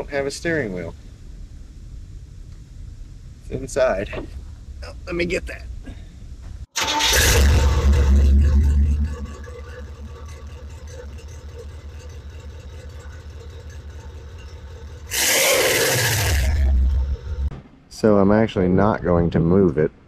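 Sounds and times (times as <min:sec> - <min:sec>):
car engine idling: 0:06.8 - 0:17.5
car engine revving: 0:06.8 - 0:17.5.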